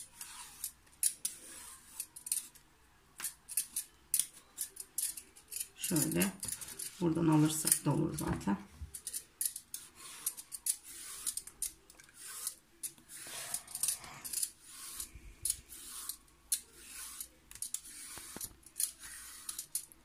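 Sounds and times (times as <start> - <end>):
peeler scraping zucchini skin: 0.0 - 2.6, 8.9 - 19.9.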